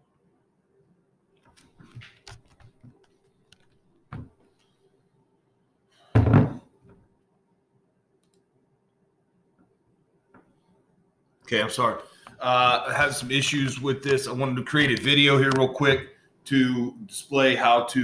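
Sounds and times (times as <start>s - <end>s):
heavy thunk: 6.2s - 6.6s
helmet knocking against desk: 6.2s - 6.6s.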